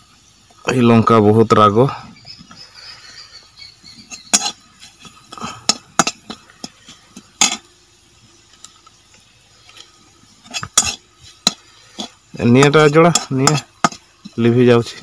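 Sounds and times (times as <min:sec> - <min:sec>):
metal spatula scraping a pan: 0:03.8 - 0:07.7, 0:09.6 - 0:15.0.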